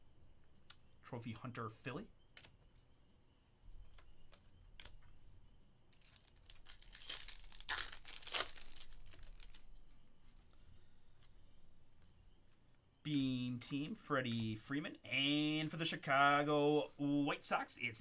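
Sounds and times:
cards rustling: 5.9s - 10.6s.

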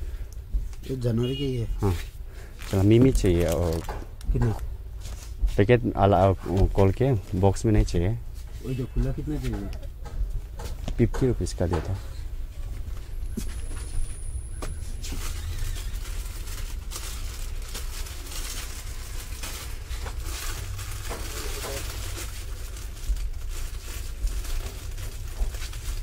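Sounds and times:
plastic packets crinkling: 1.8s - 5.3s, 13.2s - 26.0s
low rumble: 12.1s - 26.0s.

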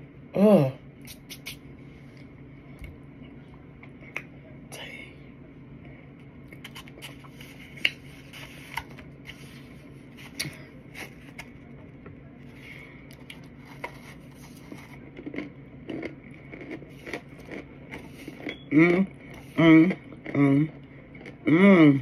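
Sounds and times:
faint steady hum: 0.0s - 22.0s
crunchy eating sounds: 1.0s - 2.4s, 6.2s - 22.0s.

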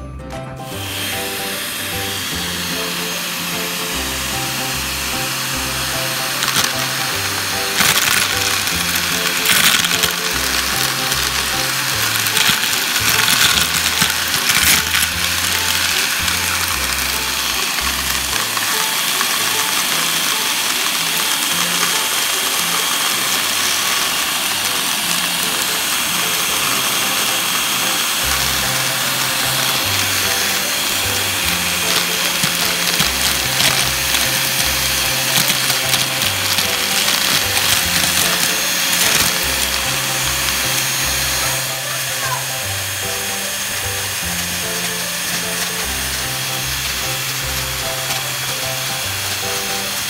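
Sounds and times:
background music with bass line: 0.0s - 18.7s
handheld vacuum motor whine: 0.6s - 50.0s
plastic bricks clattering: 4.8s - 42.2s, 42.8s - 50.0s.

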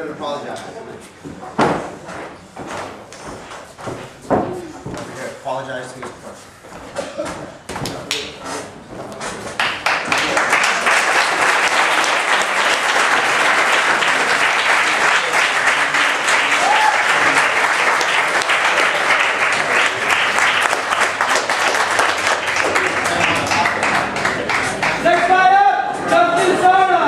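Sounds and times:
crowd applauding: 9.6s - 25.4s.

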